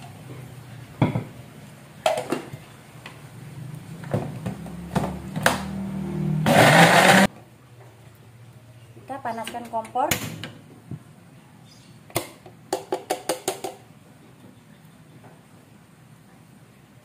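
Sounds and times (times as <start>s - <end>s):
blender motor hum: 6.2s - 7.3s
loud burst of blending: 6.2s - 7.3s.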